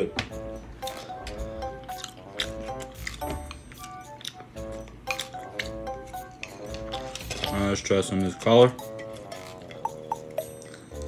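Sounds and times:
melody of held notes: 8.2 - 11.0.

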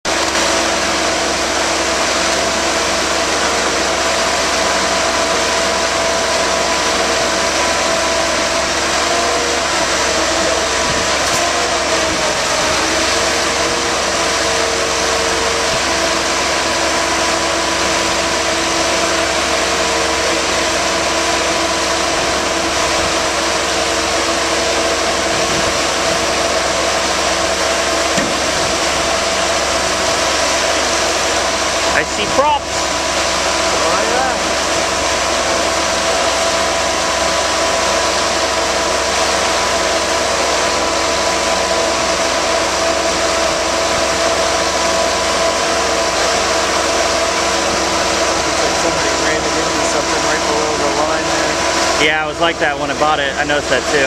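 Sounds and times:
engine and hydraulic drone: 0.0 - 54.0.

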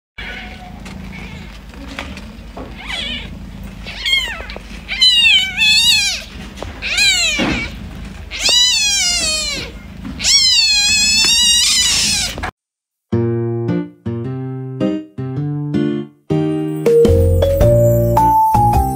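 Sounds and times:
kitten mewing: 0.2 - 12.5.

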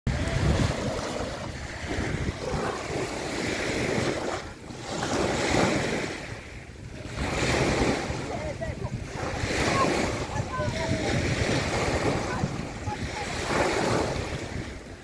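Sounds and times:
waves washing on shore: 0.1 - 15.0
wind rumbling on microphone: 0.1 - 15.0.

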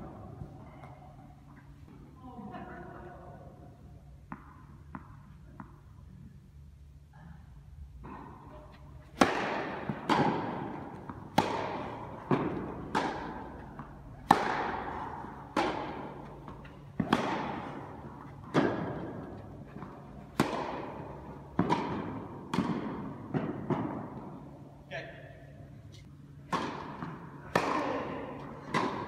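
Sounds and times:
racket striking tennis ball: 8.0 - 24.6, 26.4 - 29.0
ball bouncing on court: 9.2 - 24.1, 26.5 - 29.0.

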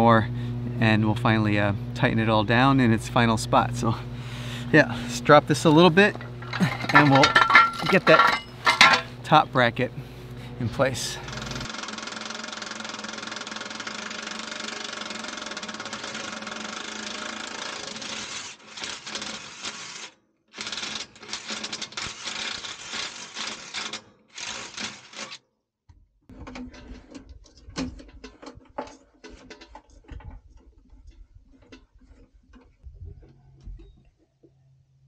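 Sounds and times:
clicks and knocks of parts: 6.1 - 9.2, 26.3 - 32.8
power drill boring into metal: 11.3 - 25.4.

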